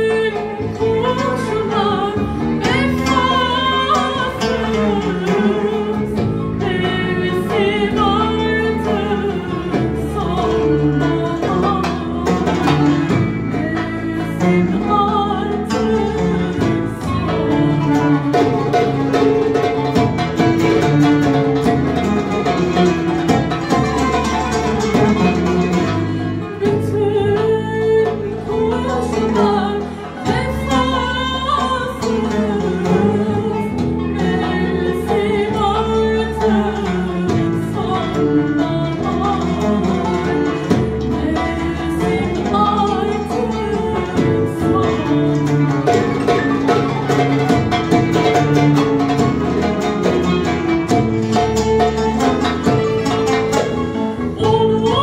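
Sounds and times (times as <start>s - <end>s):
plucked long-necked lute: 0.0s - 55.0s
woman singing: 0.0s - 55.0s.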